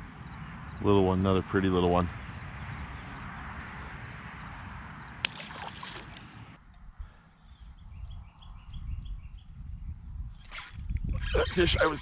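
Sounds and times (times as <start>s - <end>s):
wind rumble on microphone: 0.0s - 12.0s
fish splashing into water: 5.2s - 6.2s.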